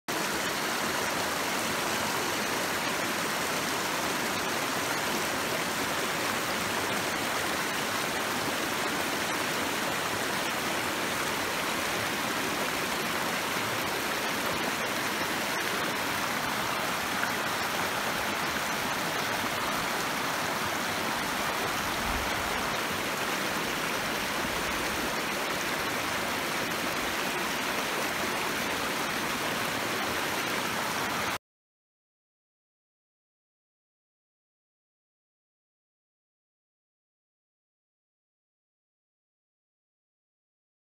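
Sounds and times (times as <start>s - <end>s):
water rushing over rocks: 0.1s - 31.4s.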